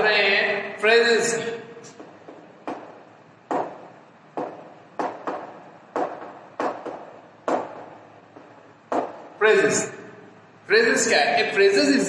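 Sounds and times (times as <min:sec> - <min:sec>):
chalk tapping on blackboard: 0:02.0 - 0:03.8, 0:04.4 - 0:09.2.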